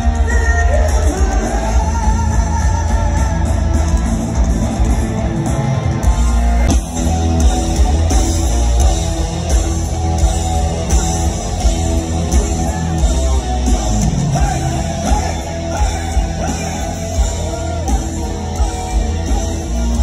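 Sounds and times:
person singing: 0.0s - 4.0s
distorted electric guitars: 0.0s - 20.0s
drums: 0.0s - 20.0s
heavy bass: 0.0s - 20.0s.

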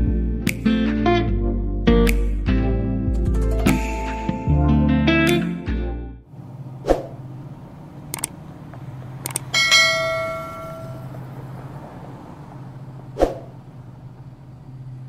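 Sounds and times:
sharp clicks: 8.0s - 9.6s
bell-like ding: 9.6s - 11.1s.

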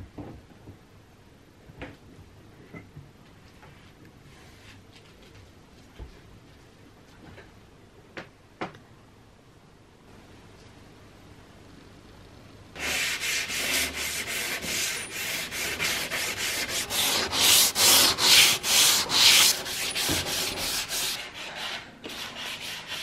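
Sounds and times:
sandpaper rasping on wood: 12.8s - 23.0s.

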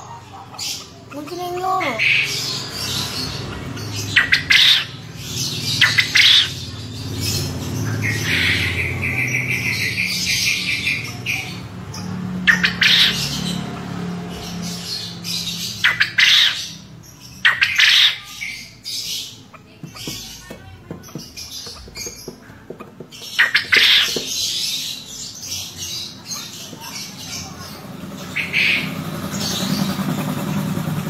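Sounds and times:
quail calling: 3.4s - 5.0s, 5.8s - 6.6s, 8.0s - 13.5s, 15.8s - 16.8s, 17.4s - 24.8s.

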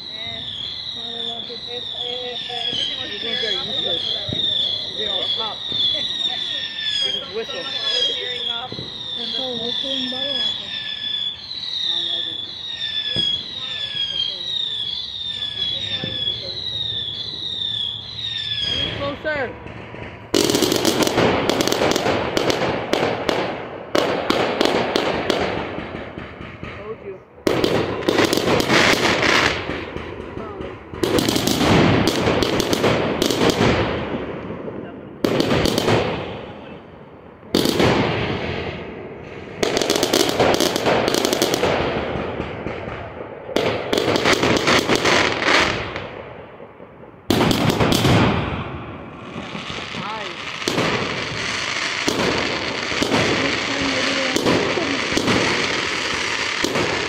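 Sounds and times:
fireworks bangs: 0.0s - 57.0s
fireworks crackling: 0.0s - 57.0s
crackling pops: 27.5s - 34.5s, 35.2s - 36.4s, 39.2s - 57.0s.

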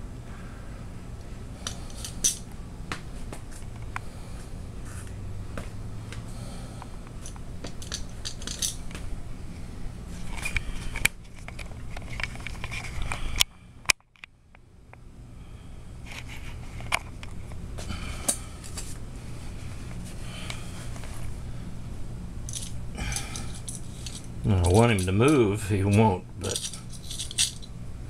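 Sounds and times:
steady low hum: 0.0s - 28.0s
mousetrap clicking and scraping: 1.6s - 2.5s, 7.2s - 8.9s, 22.5s - 27.7s.

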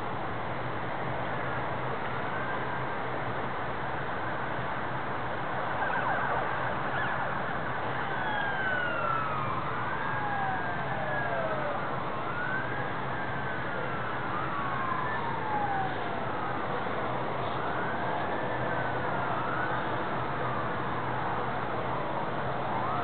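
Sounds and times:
emergency siren wailing: 5.5s - 23.0s.

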